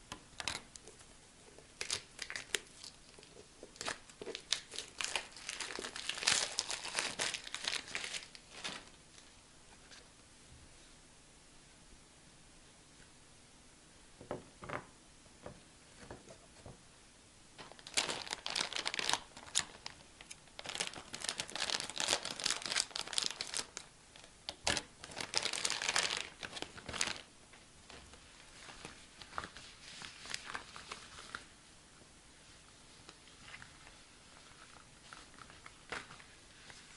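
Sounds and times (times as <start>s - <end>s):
plastic packaging crinkling: 0.4s - 9.0s, 17.6s - 31.5s, 33.1s - 36.9s
rustling of gloves: 0.4s - 10.2s, 17.6s - 23.9s, 24.6s - 31.6s, 32.3s - 36.9s
plastic tearing: 1.8s - 9.0s, 17.6s - 27.3s.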